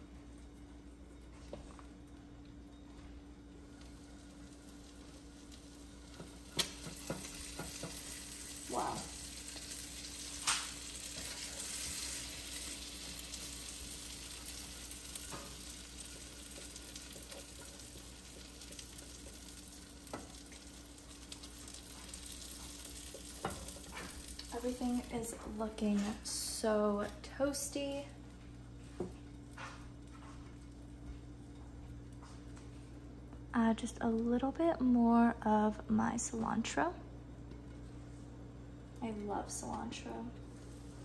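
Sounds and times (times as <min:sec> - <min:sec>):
batter sizzling in a frying pan: 0:03.0 - 0:33.2, 0:40.4 - 0:41.0.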